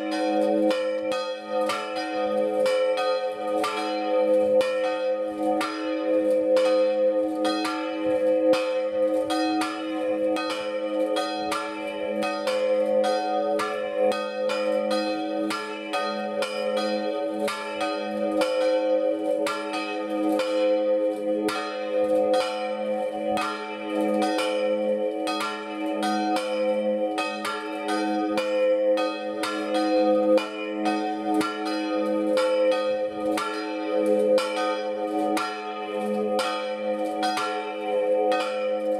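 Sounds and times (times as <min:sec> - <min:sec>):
church bells clanging: 0:00.0 - 0:38.9.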